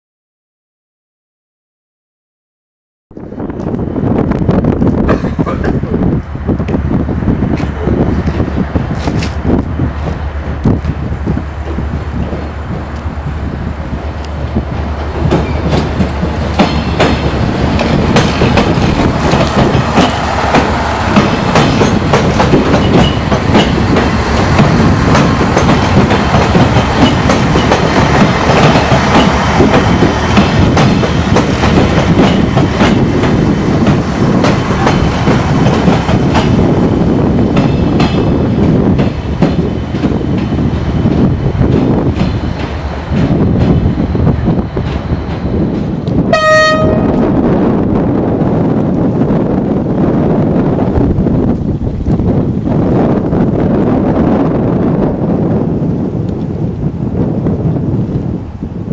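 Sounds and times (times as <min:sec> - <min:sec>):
diesel train engine running: 0:03.2 - 0:58.9
train wheels clicking over rail joints: 0:07.5 - 0:11.0, 0:14.2 - 0:46.3.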